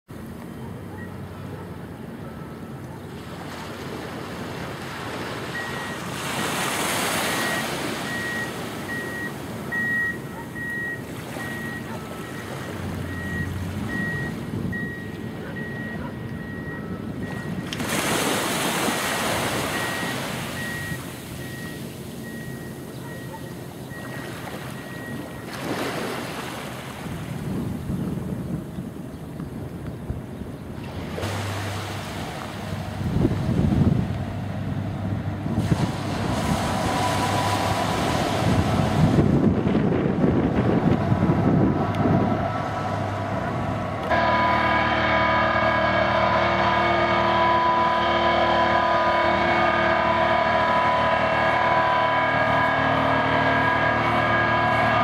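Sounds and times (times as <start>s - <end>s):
distant reversing beeper: 0.5s - 1.6s, 5.2s - 27.0s, 31.2s - 55.0s
small waves washing: 3.1s - 14.4s, 17.3s - 22.3s, 24.0s - 27.4s, 30.8s - 33.6s, 35.5s - 39.8s
wind gusting on microphone: 27.0s - 44.1s.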